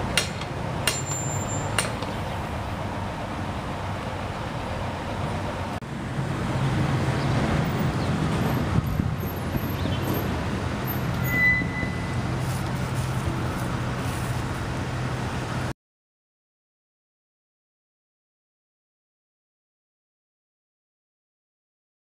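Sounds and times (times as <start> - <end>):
street traffic noise: 0.0 - 15.8.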